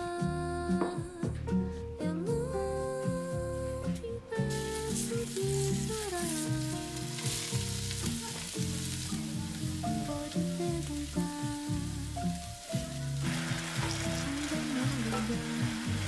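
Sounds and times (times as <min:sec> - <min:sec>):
background music: 0:00.0 - 0:16.0
vegetables sizzling in a pan: 0:04.4 - 0:16.0.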